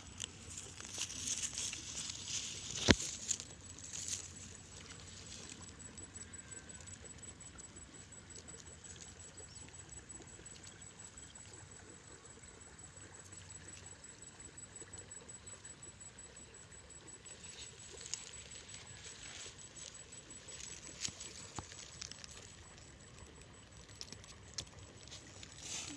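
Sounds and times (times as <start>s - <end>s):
dry grass rustling and crackling: 0.0s - 5.6s, 17.4s - 25.9s
low steady hiss: 0.0s - 25.9s.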